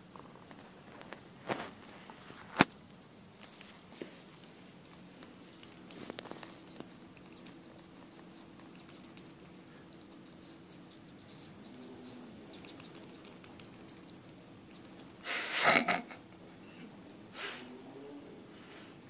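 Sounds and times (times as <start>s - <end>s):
squirrel crunching apple: 4.8s - 15.2s.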